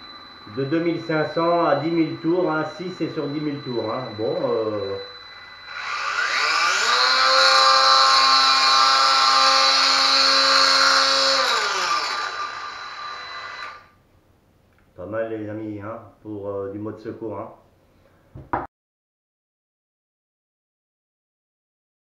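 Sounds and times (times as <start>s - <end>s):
angle grinder whine: 0.0s - 14.0s.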